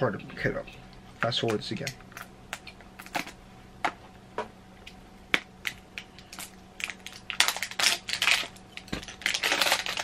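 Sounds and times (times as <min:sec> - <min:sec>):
plastic shrink wrap crackling: 0:06.0 - 0:10.0.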